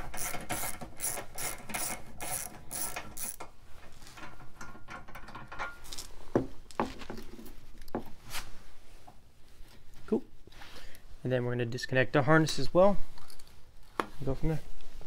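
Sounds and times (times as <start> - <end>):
ratchet clicking: 0.0 - 3.5
handling of tools and parts: 0.0 - 8.2, 12.5 - 14.3.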